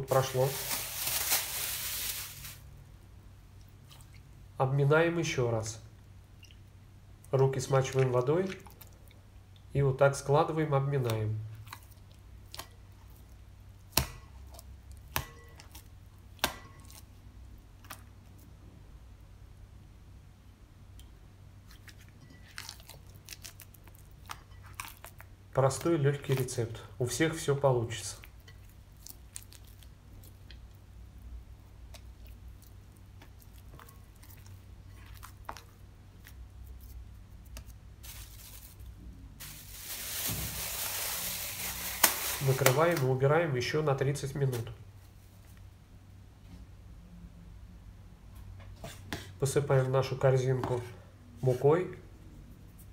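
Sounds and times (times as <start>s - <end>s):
wet dough squelching: 0.0s - 2.7s, 6.3s - 9.8s, 10.8s - 18.6s, 21.6s - 30.9s, 31.7s - 43.2s
cling film pulled off roll: 39.4s - 43.0s.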